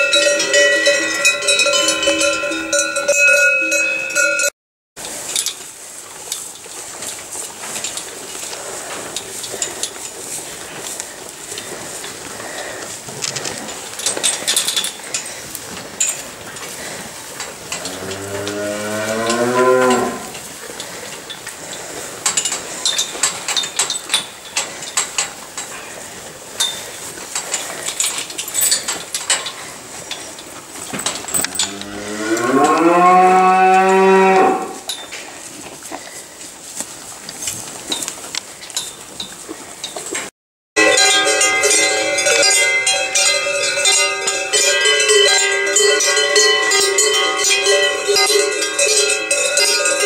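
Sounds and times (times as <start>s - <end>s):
clicks and rustles: 5.0s - 18.6s, 19.2s - 32.9s, 34.8s - 40.3s
cows mooing: 17.7s - 20.4s, 31.3s - 34.9s.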